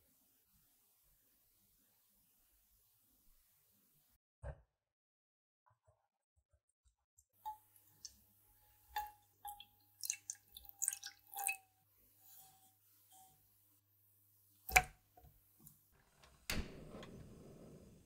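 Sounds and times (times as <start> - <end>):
liquid pouring into a saucepan: 7.4 - 13.3.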